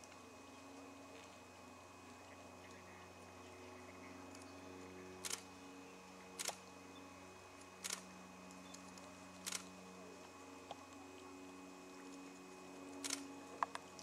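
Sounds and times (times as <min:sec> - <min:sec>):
faint low hum: 0:00.0 - 0:14.0
camera shutter double clicks: 0:05.2 - 0:05.4, 0:06.4 - 0:06.6, 0:07.8 - 0:08.0, 0:13.0 - 0:13.3.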